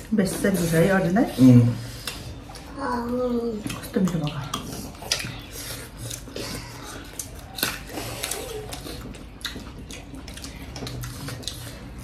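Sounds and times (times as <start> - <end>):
chewing and mouth smacking: 3.5 - 12.0.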